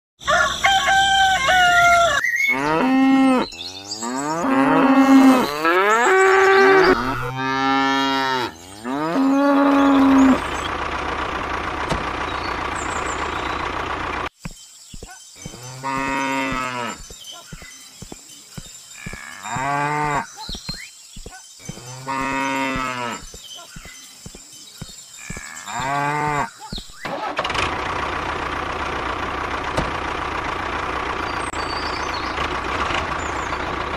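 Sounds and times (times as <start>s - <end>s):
cattle mooing: 2.5s - 10.6s, 15.6s - 17.0s, 19.0s - 20.3s, 21.8s - 23.3s, 25.2s - 26.5s
steady engine-like hum: 8.5s - 14.3s, 27.2s - 33.9s.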